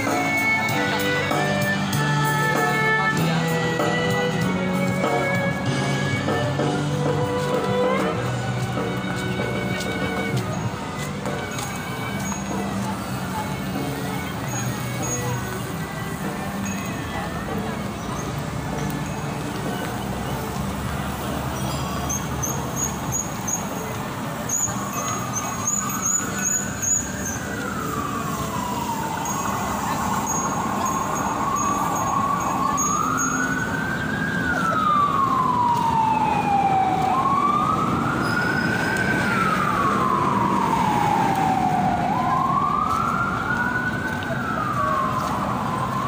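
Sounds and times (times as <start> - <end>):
crowded street noise: 0.0 - 46.0
siren wailing: 24.4 - 46.0.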